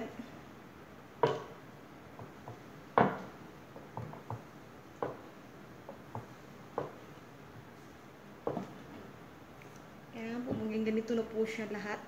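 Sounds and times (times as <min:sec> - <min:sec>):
rolling pin knocking on wooden board: 0:01.2 - 0:07.1, 0:08.4 - 0:09.0.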